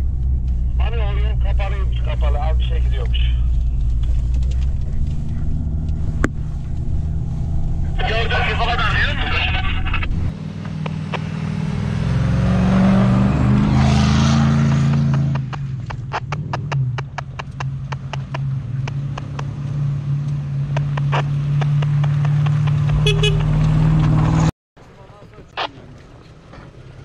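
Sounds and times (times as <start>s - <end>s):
engine running and revving: 0.0s - 24.5s
sharp clicks and crackles: 1.4s - 7.0s, 9.8s - 11.3s, 14.9s - 23.8s.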